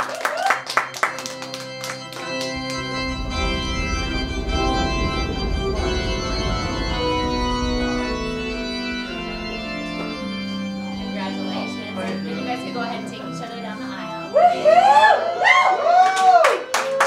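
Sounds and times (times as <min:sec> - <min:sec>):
scattered applause: 0:00.0 - 0:05.0, 0:14.4 - 0:17.0
recessional music with held chords: 0:00.6 - 0:16.4
deep bass: 0:01.7 - 0:15.1.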